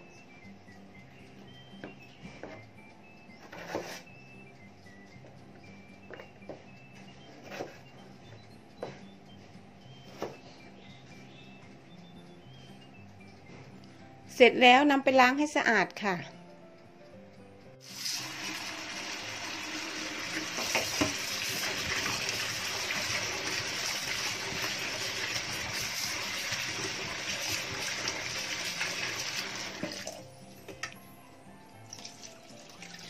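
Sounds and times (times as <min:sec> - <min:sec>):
tap water running into pot: 0:17.8 - 0:30.2, 0:31.9 - 0:33.0.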